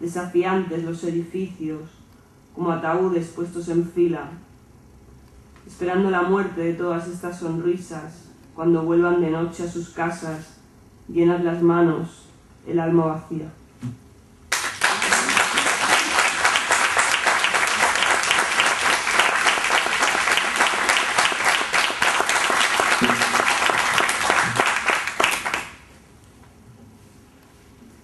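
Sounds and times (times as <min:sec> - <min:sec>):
audience applause: 0:14.5 - 0:25.9.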